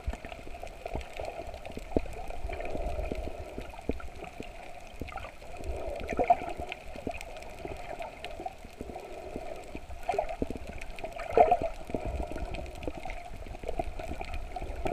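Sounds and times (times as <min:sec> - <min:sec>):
muffled rush of water underwater: 0:00.0 - 0:14.9
water gurgles: 0:00.0 - 0:14.9.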